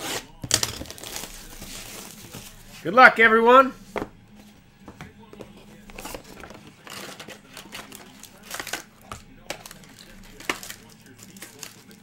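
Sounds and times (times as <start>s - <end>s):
cardboard box scraping and rustling: 0.0s - 2.8s, 5.5s - 8.6s.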